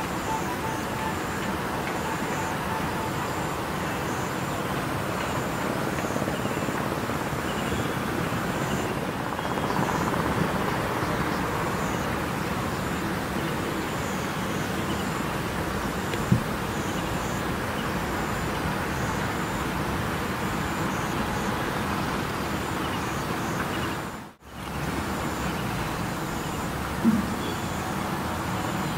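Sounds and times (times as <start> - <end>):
faint high repeated tone: 0.0 - 5.3
city traffic noise: 0.0 - 28.9.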